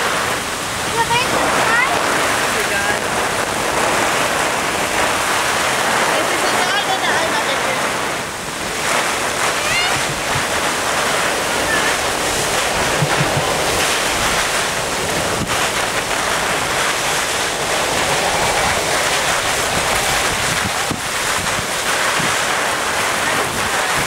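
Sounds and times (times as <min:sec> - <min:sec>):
torrential rain: 0:00.0 - 0:24.0
wind buffeting microphone: 0:00.0 - 0:24.0.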